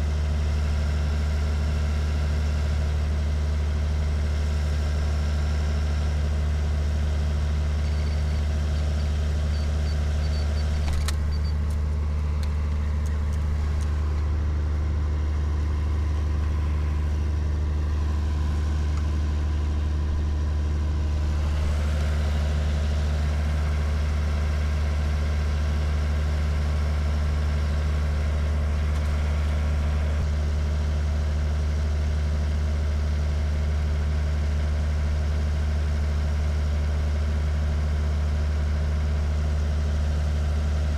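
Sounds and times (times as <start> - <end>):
low mechanical drone: 6.1 - 31.1.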